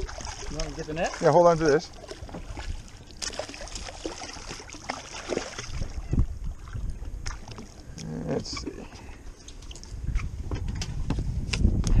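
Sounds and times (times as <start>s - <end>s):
water lapping against boat hull: 0.0s - 12.0s
wind rumble on microphone: 5.5s - 12.0s.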